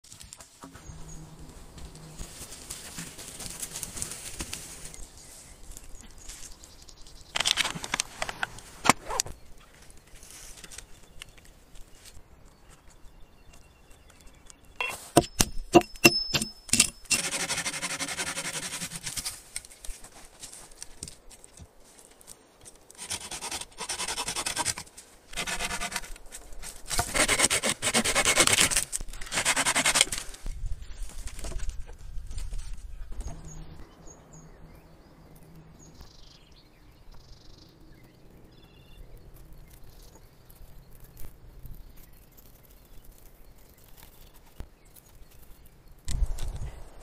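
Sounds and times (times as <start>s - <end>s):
hand tool rasping wooden pole: 14.8s - 19.3s, 23.0s - 24.8s, 25.4s - 26.2s, 26.9s - 30.2s.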